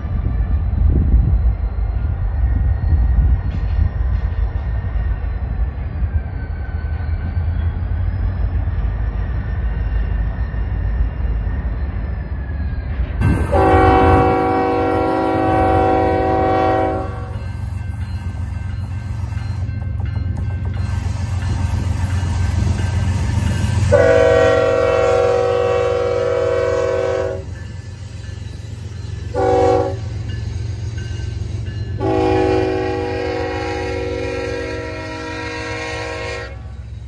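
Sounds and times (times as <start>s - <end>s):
diesel locomotives rumbling: 0.0s - 37.0s
locomotive air horn chord: 13.3s - 17.4s, 23.9s - 27.5s, 29.3s - 30.1s, 32.0s - 36.7s.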